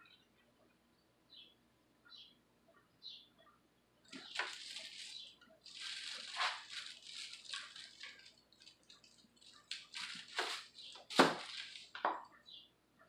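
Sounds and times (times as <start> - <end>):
plastic sheeting crinkling: 4.1 - 12.1.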